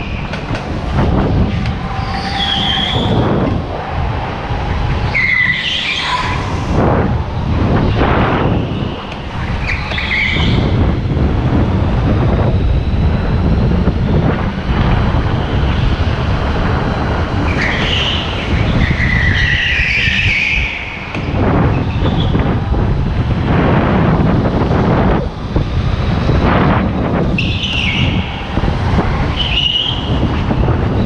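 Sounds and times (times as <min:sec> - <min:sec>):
go-kart engine rumble: 0:00.0 - 0:31.0
tyres squealing: 0:01.7 - 0:03.2.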